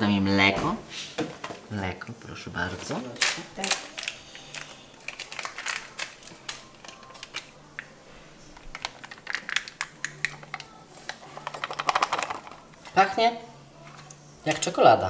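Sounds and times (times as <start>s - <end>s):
foil sachet crinkling: 3.2s - 12.9s.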